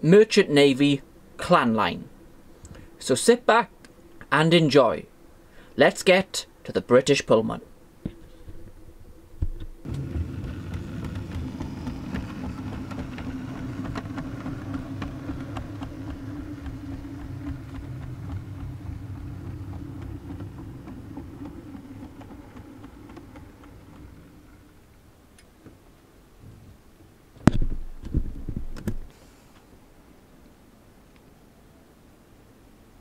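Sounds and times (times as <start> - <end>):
wheels clicking over rail joints: 9.9 - 25.0
model train motor hum: 9.9 - 25.1.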